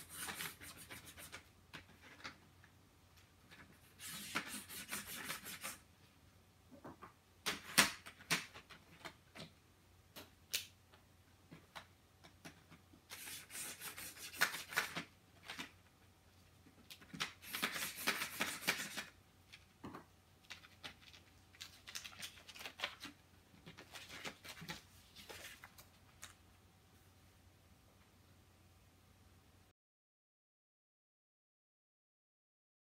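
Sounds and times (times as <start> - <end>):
pen scratching on paper: 13.1 - 14.5
paper rustling: 13.1 - 15.8, 16.8 - 19.7, 20.4 - 26.4.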